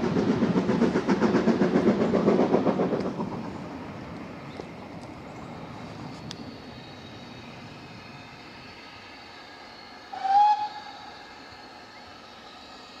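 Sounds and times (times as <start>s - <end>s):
train wheels clattering on rails: 0.0s - 6.6s
faint high steady tones: 5.7s - 13.0s.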